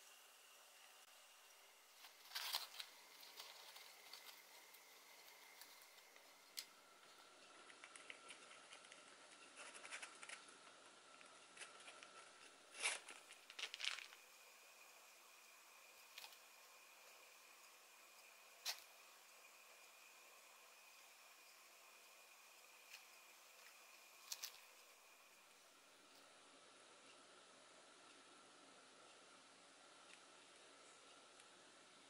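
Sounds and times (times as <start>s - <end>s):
plastic bag crinkling: 2.0s - 6.7s, 11.6s - 14.2s.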